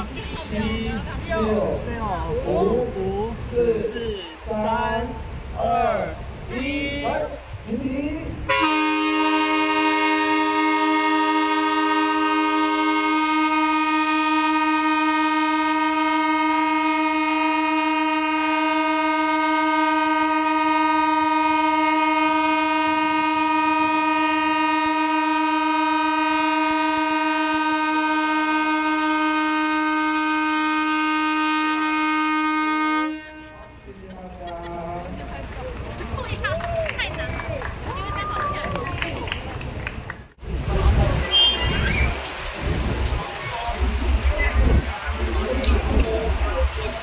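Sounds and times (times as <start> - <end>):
train horns chord: 8.5 - 33.8.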